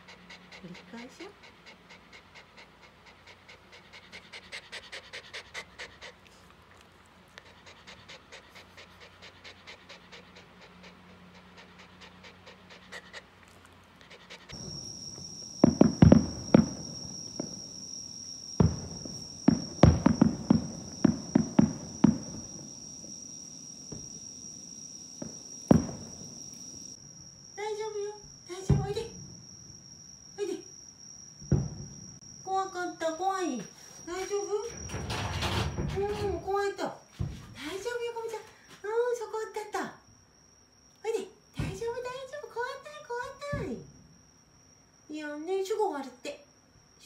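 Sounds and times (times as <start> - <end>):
dog panting: 0.0 - 17.7
insects trilling: 0.0 - 47.0
fireworks booming: 14.5 - 27.0, 28.6 - 29.4, 31.4 - 32.2.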